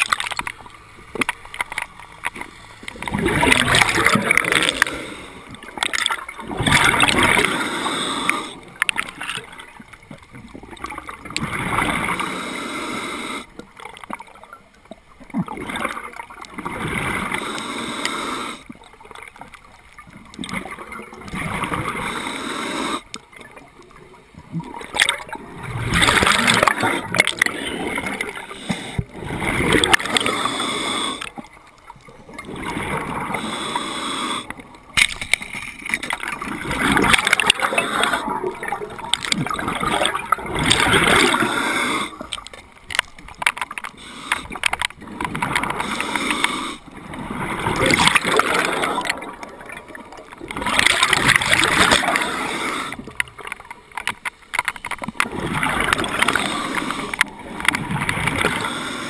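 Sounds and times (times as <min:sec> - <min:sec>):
diver breathing through regulator: 0:02.4 - 0:05.8, 0:06.8 - 0:08.8, 0:12.0 - 0:13.6, 0:17.0 - 0:18.8, 0:21.6 - 0:23.1, 0:25.9 - 0:31.5, 0:32.9 - 0:34.7, 0:36.6 - 0:38.5, 0:40.6 - 0:42.4, 0:43.8 - 0:44.8, 0:45.4 - 0:49.4, 0:50.7 - 0:53.2, 0:55.8 - 0:57.3, 0:58.2 - 0:59.0
gurgling exhaust bubbles: 0:03.0 - 0:05.0, 0:24.4 - 0:28.4.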